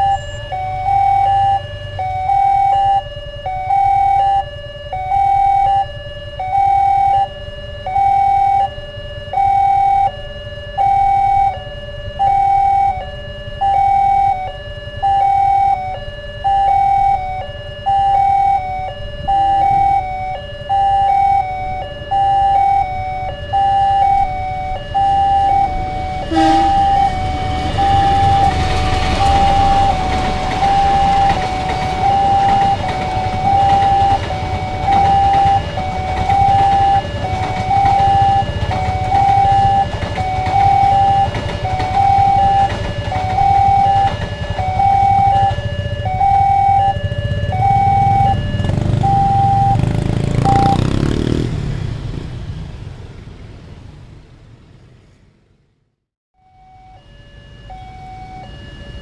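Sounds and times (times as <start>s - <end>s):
passenger train rumbling: 0.0s - 1.0s, 22.8s - 47.3s
two-tone crossing alarm: 0.0s - 51.4s, 56.4s - 59.0s.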